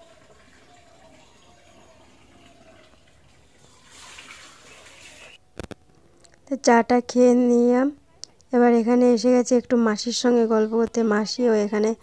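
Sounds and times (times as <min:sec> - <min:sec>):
running water from tap: 0:00.0 - 0:05.4
splashing of clothes being washed: 0:02.4 - 0:05.4.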